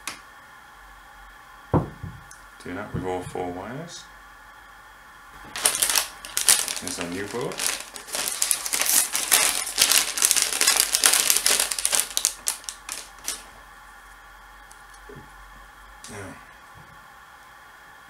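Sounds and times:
plastic bag crinkling: 5.4 - 13.6.

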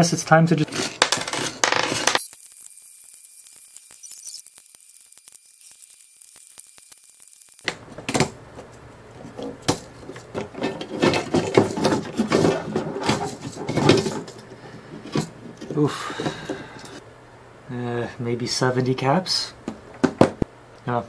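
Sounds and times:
metal parts knocking and rattling: 9.2 - 14.4.

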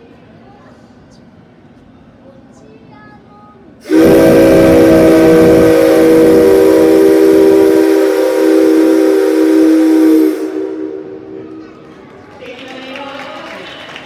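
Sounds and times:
rough steam hiss: 3.8 - 11.4
steam locomotive whistle chord: 3.8 - 11.4.

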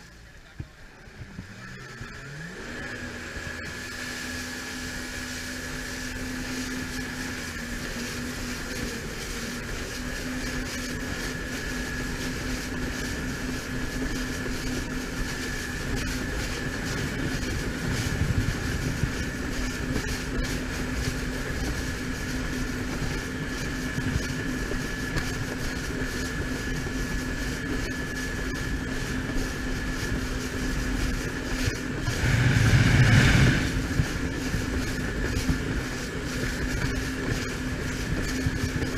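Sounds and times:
jet ski engine running: 0.0 - 38.9
wind noise: 5.8 - 38.9
water rushing: 29.8 - 38.9.

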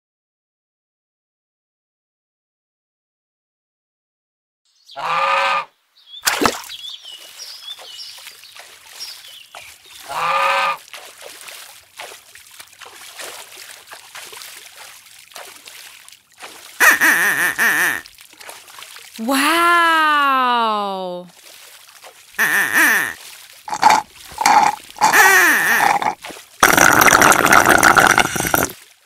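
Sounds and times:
duck quacking: 5.0 - 5.7, 10.1 - 10.8, 16.8 - 18.0, 22.4 - 23.2
soft splashing water: 6.2 - 29.0.

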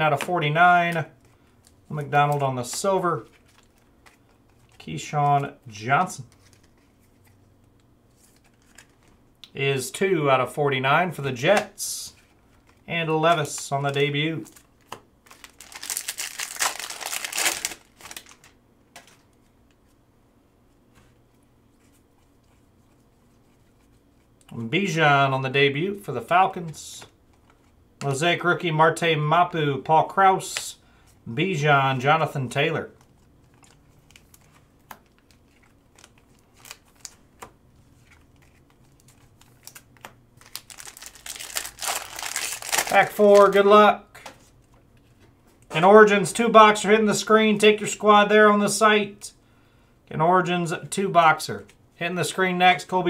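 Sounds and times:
cards being flipped through: 6.2 - 7.4, 8.1 - 9.2, 11.6 - 19.5, 33.4 - 44.7
foil wrapper crinkling and tearing: 14.4 - 18.6, 33.4 - 37.2, 38.1 - 43.6.

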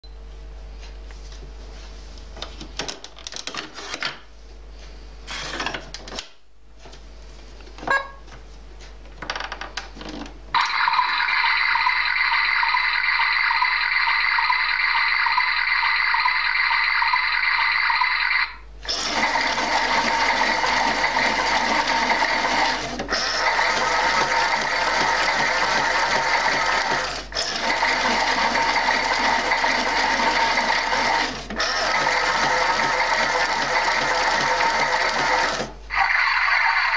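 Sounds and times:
toy motor whirring: 18.9 - 36.9.

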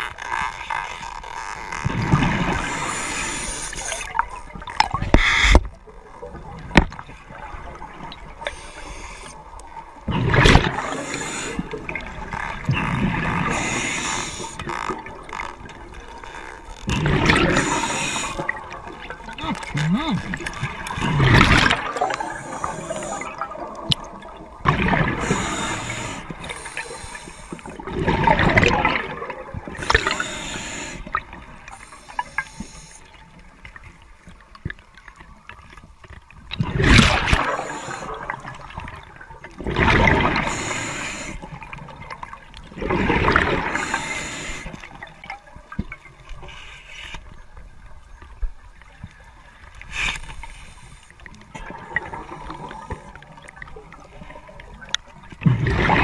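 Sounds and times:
exhaled bubbles underwater: 1.8 - 16.1, 16.8 - 33.2, 34.4 - 46.2, 51.2 - 56.0
faint ticks: 29.8 - 36.5.

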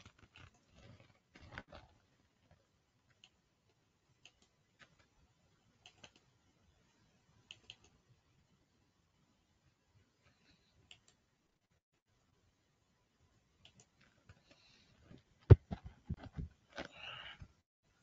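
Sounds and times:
computer mouse clicks: 4.2 - 5.1, 5.8 - 6.3, 7.4 - 8.0, 10.9 - 11.2, 13.6 - 14.5.

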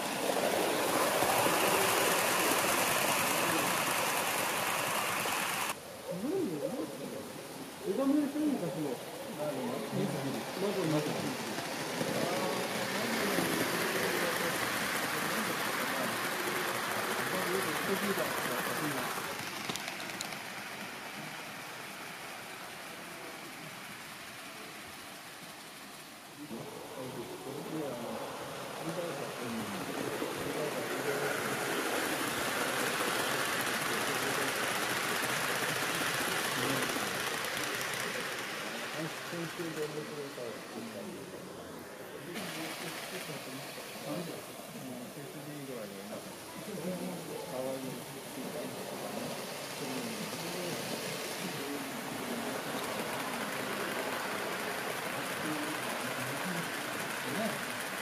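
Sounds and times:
model train rolling on track: 0.0 - 58.0.

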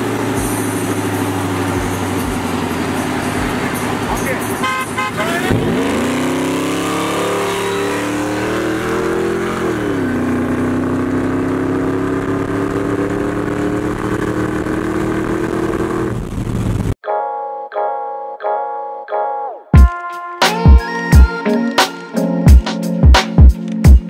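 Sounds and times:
truck engine accelerating: 0.0 - 17.0.

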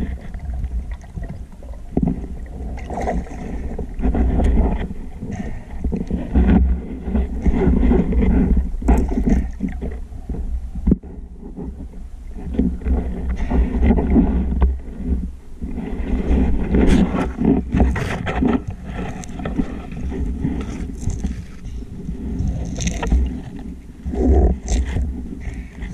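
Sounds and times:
underwater water rumble: 0.0 - 25.9.

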